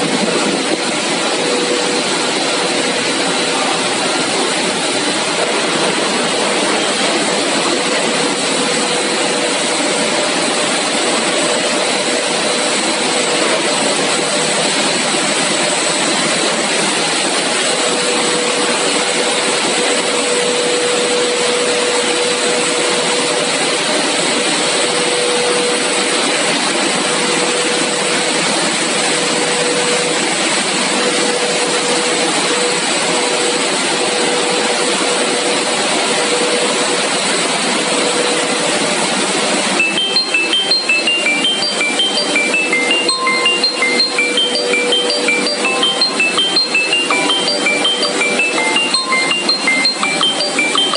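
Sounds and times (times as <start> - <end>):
machine rushing roar: 0.0 - 19.7
mid-pitched machine hum: 0.0 - 36.0
faint high whine: 39.8 - 50.9.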